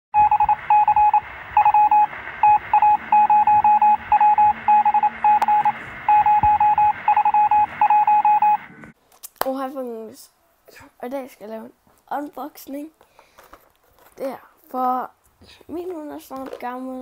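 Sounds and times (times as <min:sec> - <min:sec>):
electronic beeps like morse code: 0:00.2 - 0:08.7.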